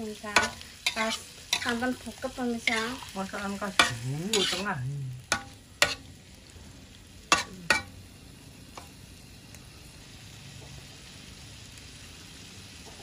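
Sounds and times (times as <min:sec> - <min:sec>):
sauce sizzling: 0:00.0 - 0:13.0
metal spatula scraping a wok: 0:00.1 - 0:06.1.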